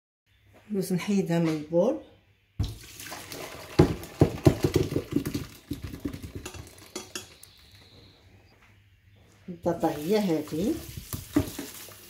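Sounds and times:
water splashing: 2.6 - 4.2, 9.8 - 12.0
potatoes knocking on basket: 3.8 - 6.8, 11.0 - 11.8.

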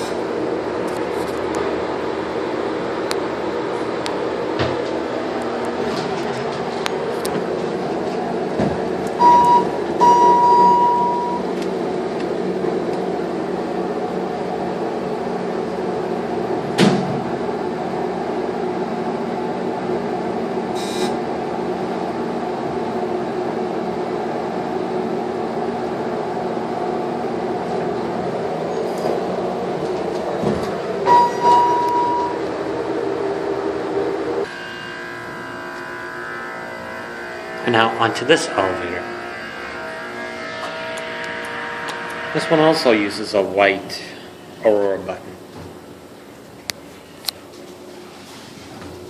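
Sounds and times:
elevator humming: 0.0 - 43.6
electronic beeps: 9.2 - 11.4, 31.1 - 32.4.

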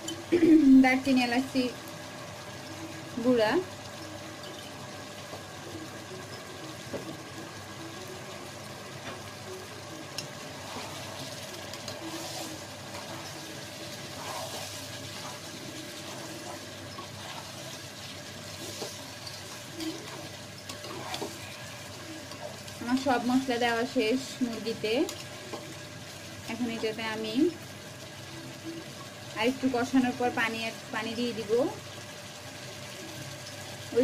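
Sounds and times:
low sizzle in a pot: 0.0 - 34.0
spatula scraping and knocking pot: 18.6 - 21.5.

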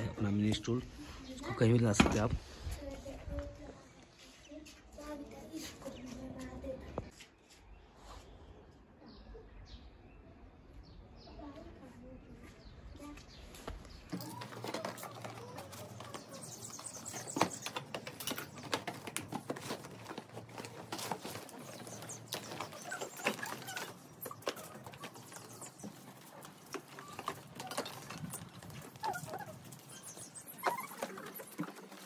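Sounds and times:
rustling of camping gear: 13.3 - 32.0.

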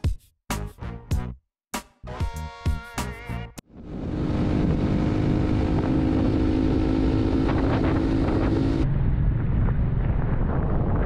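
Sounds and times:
motorcycle engine drone: 3.7 - 11.0
wind rushing over microphone: 3.7 - 11.0.

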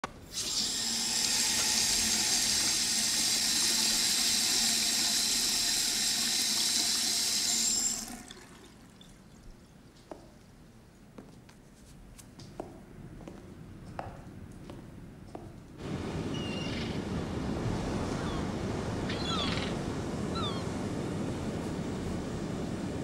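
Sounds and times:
tap water running into sink: 0.3 - 9.4.

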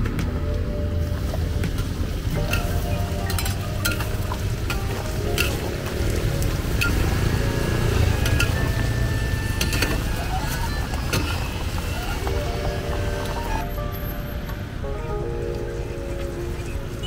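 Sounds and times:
metal ladle clinking: 2.4 - 5.8.

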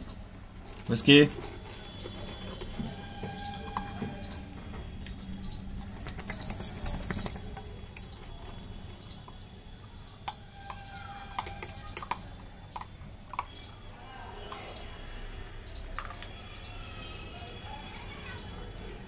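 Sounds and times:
kibble clicking against metal bowl: 0.1 - 9.4, 10.1 - 13.8
dog crunching kibble: 0.2 - 9.4, 10.2 - 14.7.

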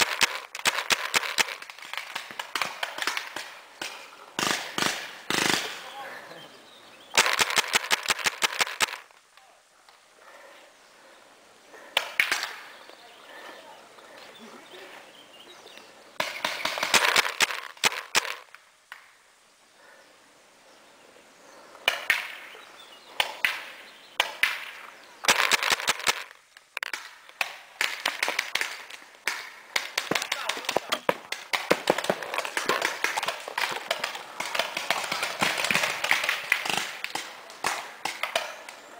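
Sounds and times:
paintball markers firing: 0.0 - 5.9, 7.2 - 9.1, 16.2 - 18.5, 23.2 - 38.8.

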